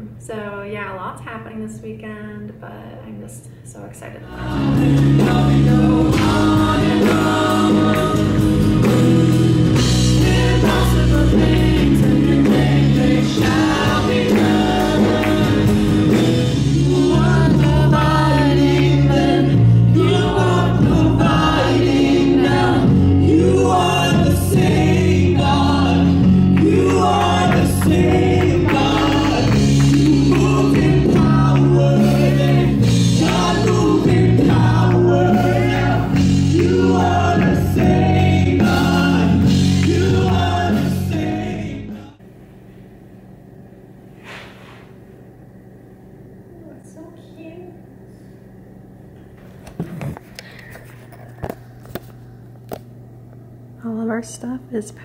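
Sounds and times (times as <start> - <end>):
male and female voices singing: 4.0 - 9.1, 9.8 - 42.2
drums: 4.3 - 42.2
heavy bass: 4.3 - 42.2
acoustic guitar: 4.4 - 42.1.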